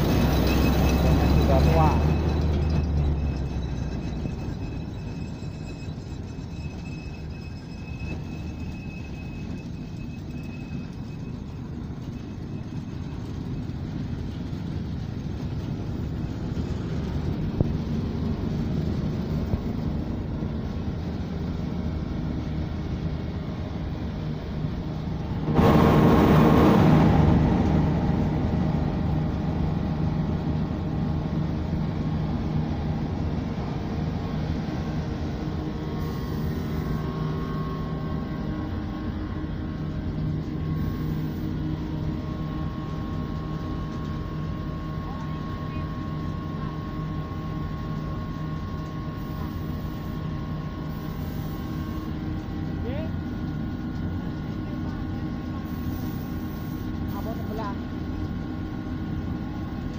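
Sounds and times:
machinery rumble: 0:00.0 - 0:59.9
rushing roar: 0:25.3 - 0:30.8.

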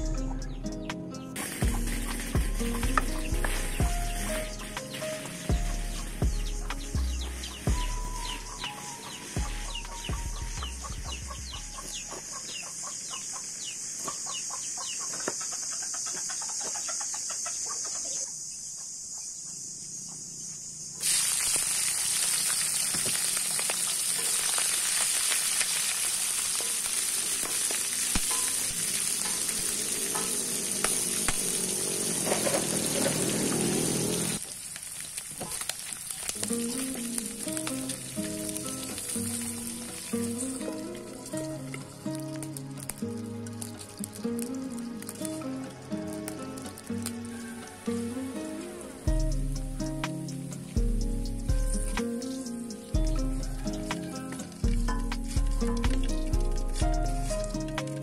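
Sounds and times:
background music: 0:00.0 - 0:12.4, 0:36.4 - 0:58.0
crackling hiss: 0:00.6 - 0:58.0
deep-frying sizzle in oil: 0:21.0 - 0:47.9.

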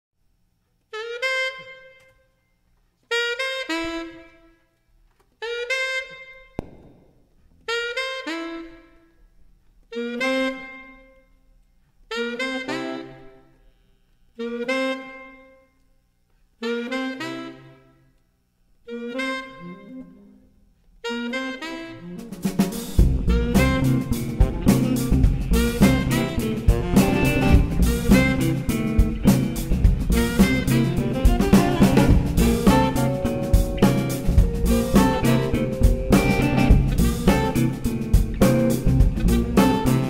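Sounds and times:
jazz horn section playing chords: 0:00.9 - 0:02.1, 0:03.1 - 0:04.4, 0:05.4 - 0:07.0, 0:07.6 - 0:09.0, 0:09.9 - 0:11.2, 0:12.1 - 0:13.4, 0:16.6 - 0:17.8, 0:18.9 - 0:20.3, 0:21.0 - 0:40.0.

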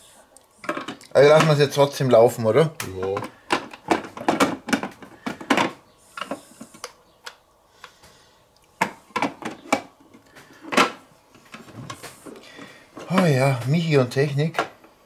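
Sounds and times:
plastic clicks and knocks: 0:02.8 - 0:07.4, 0:08.8 - 0:12.1.

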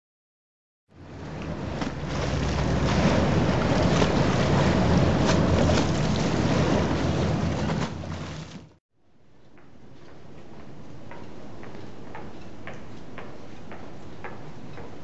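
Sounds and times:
low steady rumble: 0:00.9 - 0:08.8
water splashing against stone steps: 0:01.3 - 0:08.8.

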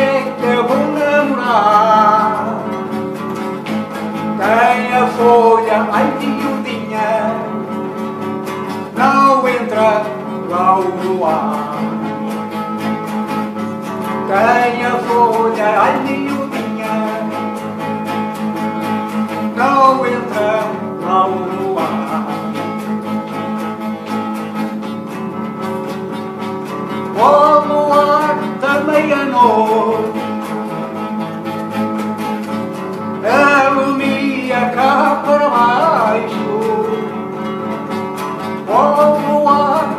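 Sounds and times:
man singing: 0:00.0 - 0:03.0, 0:04.3 - 0:07.8, 0:08.7 - 0:12.4, 0:14.2 - 0:17.8, 0:19.3 - 0:23.0, 0:27.0 - 0:30.8, 0:33.1 - 0:37.4, 0:38.4 - 0:39.9
acoustic guitar strumming: 0:00.0 - 0:39.9.

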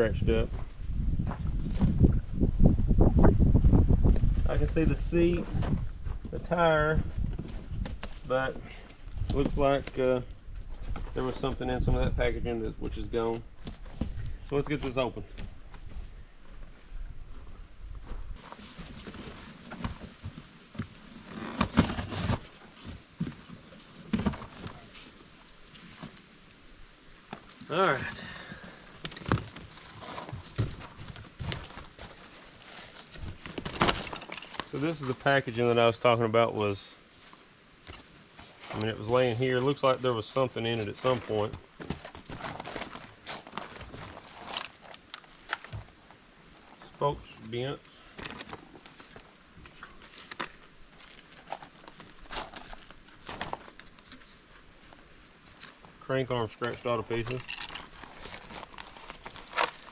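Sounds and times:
cardboard scraping and rustling: 0:18.4 - 0:26.2, 0:29.0 - 0:35.7, 0:37.2 - 0:46.0, 0:48.1 - 0:55.7, 0:56.6 - 0:59.9.

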